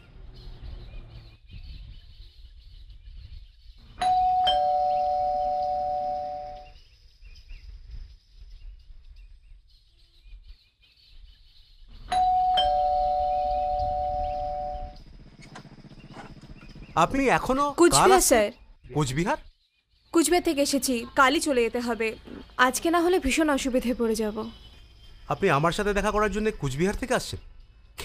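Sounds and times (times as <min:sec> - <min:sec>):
electric two-tone doorbell chime: 0:04.0 - 0:06.7, 0:12.1 - 0:15.0.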